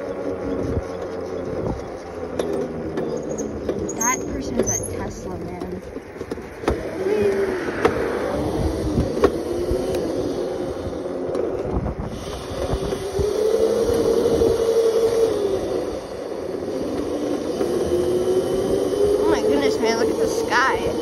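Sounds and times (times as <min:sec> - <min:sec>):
electric dirt bike motor whining: 0:00.0 - 0:21.0
wind buffeting microphone: 0:00.0 - 0:21.0.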